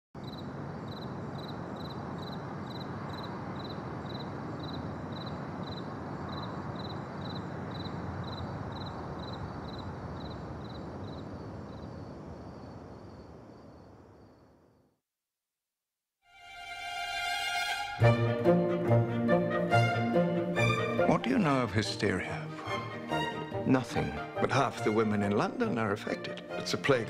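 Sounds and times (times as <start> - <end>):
crickets chirping: 0.2 - 15.0
outdoor background hiss: 0.2 - 15.2, 16.3 - 27.0.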